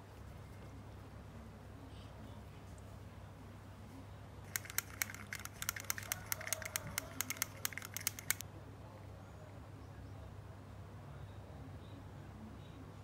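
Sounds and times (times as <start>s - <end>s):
tool clicking against plastic cup: 4.5s - 8.4s.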